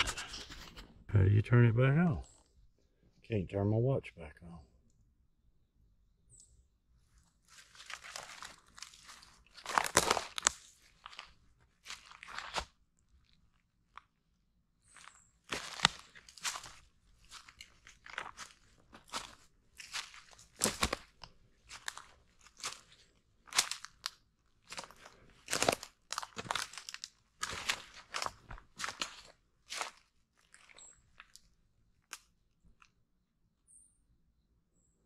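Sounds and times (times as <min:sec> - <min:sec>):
footsteps crunching through dry leaves: 0:07.4 - 0:12.7, 0:14.9 - 0:31.4.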